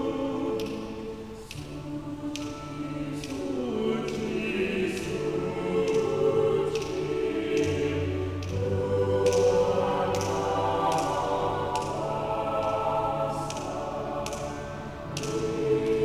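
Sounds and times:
mixed choir singing a hymn: 0.0s - 16.0s.

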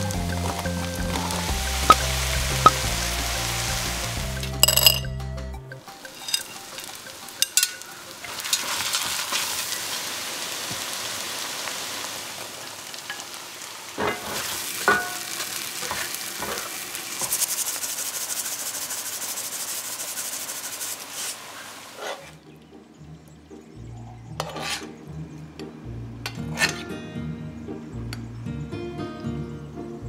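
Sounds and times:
mushrooms sizzling in fat: 0.0s - 4.6s, 5.8s - 22.1s.

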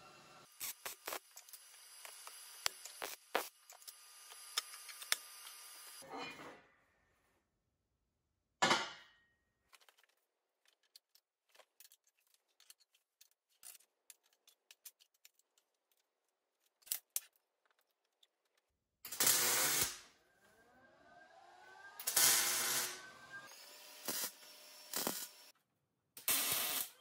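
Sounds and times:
welding arc crackling hiss: 0.4s - 6.0s, 19.1s - 20.0s, 22.0s - 25.5s, 26.2s - 27.0s.

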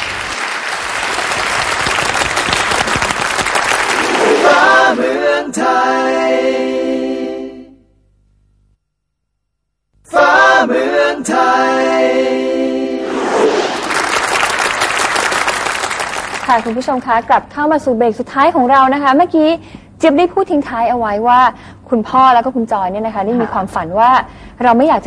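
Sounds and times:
audience applauding: 0.0s - 5.0s, 13.7s - 16.9s.

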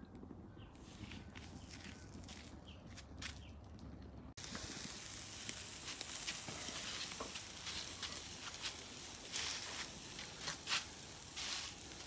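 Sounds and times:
meat sizzling on charcoal grill: 4.4s - 12.0s.

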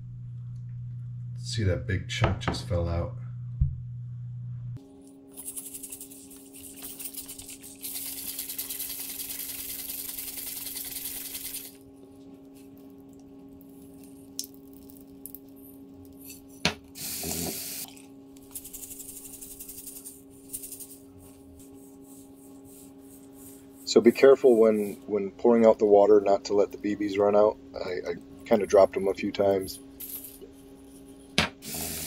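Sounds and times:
bbs rattling in glass bottle: 5.3s - 11.8s.

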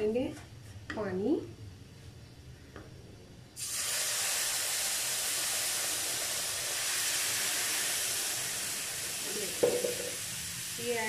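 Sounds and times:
water sizzling in hot fat: 3.6s - 11.0s.

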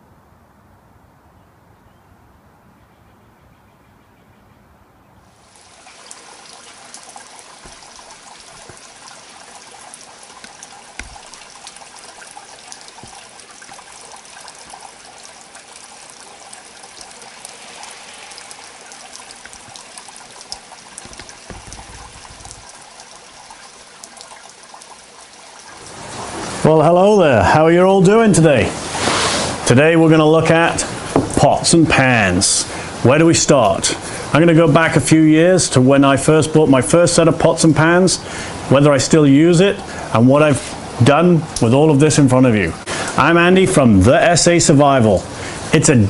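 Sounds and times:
rainwater trickling: 5.1s - 46.0s
rain on pavement: 5.3s - 27.0s.

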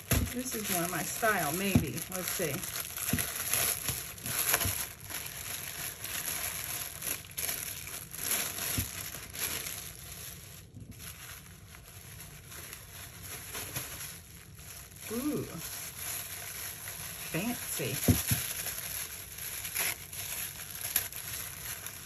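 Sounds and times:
bubble-wrap pouch crinkling: 0.0s - 22.0s.

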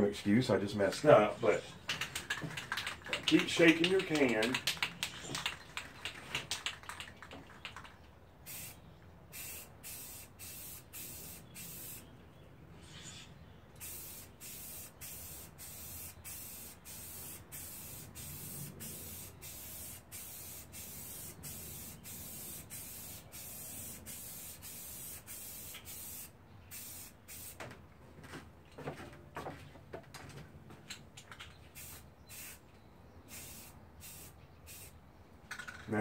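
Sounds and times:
aerosol can rattling: 1.8s - 8.0s
spray can hissing bursts: 8.5s - 12.0s, 13.8s - 27.6s, 31.8s - 32.6s, 33.3s - 35.0s.

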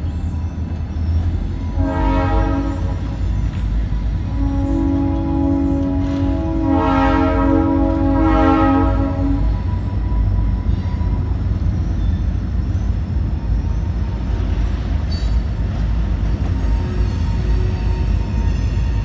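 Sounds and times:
train rumbling past: 0.0s - 19.0s
train horn chord: 1.6s - 3.2s, 4.2s - 9.7s.

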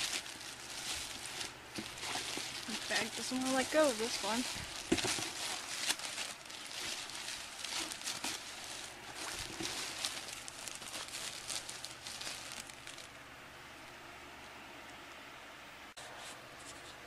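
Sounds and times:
plastic bag crinkling: 0.0s - 13.3s.

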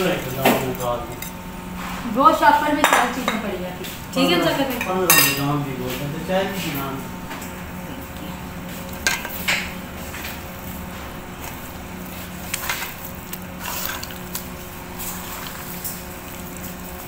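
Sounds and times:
steady low hum: 0.0s - 17.0s
utensil clinking against metal bowl: 0.3s - 1.4s, 2.8s - 3.5s, 4.7s - 5.6s
wet scraping and squishing: 8.8s - 16.8s.

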